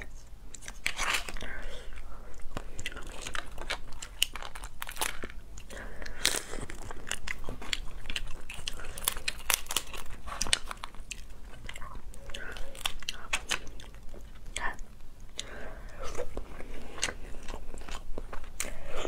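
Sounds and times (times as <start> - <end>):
chewing: 0.5 - 19.0
crab shell cracking: 2.4 - 14.4.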